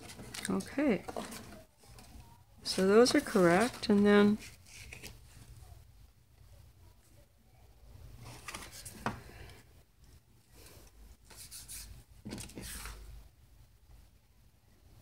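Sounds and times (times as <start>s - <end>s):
paper pages rustling: 0.0s - 5.6s, 8.2s - 9.2s, 11.3s - 13.1s.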